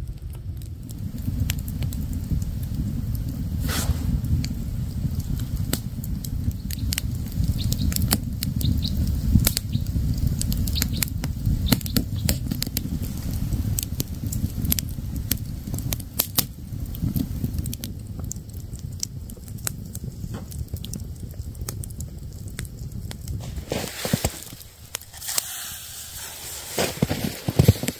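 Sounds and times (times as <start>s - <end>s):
low rumble: 0.0s - 18.3s
wood fire crackling: 0.0s - 27.9s
sharp pops: 3.6s - 5.9s, 23.4s - 27.9s.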